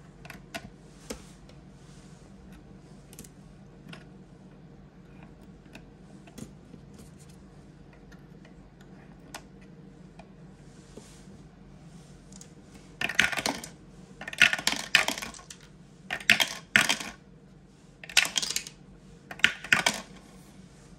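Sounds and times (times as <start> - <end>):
dice clattering through plastic tower: 13.0 - 17.2, 18.0 - 20.2.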